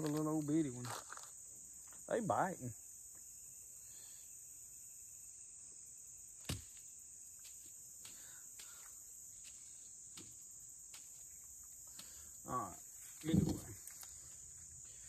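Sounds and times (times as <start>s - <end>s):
crickets chirring: 0.0s - 15.0s
faint ticks: 8.0s - 9.6s.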